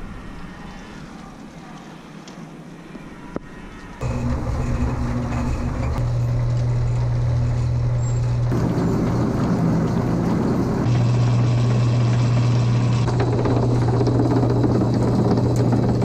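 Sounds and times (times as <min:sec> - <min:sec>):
feed machinery humming: 0:03.4 - 0:16.0.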